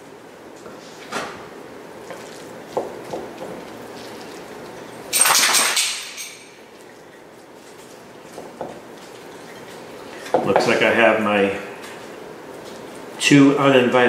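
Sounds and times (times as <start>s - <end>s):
spatula stirring thick filling: 1.9s - 5.1s, 6.8s - 10.9s.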